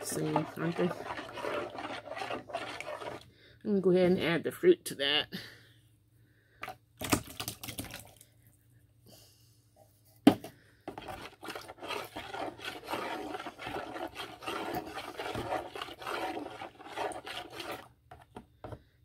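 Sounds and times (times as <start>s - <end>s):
utensil scraping a dish: 0.0s - 3.3s, 10.9s - 18.2s.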